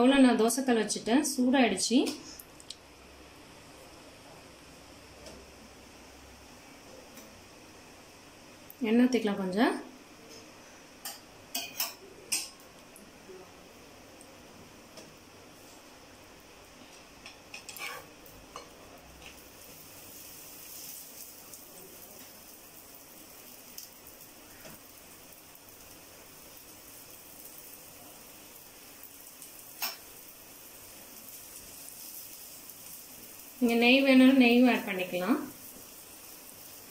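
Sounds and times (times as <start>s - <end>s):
flatbread sizzling in oil: 2.2s - 13.0s, 14.0s - 36.9s
metal utensils clicking against pan: 11.0s - 12.6s, 17.2s - 19.4s.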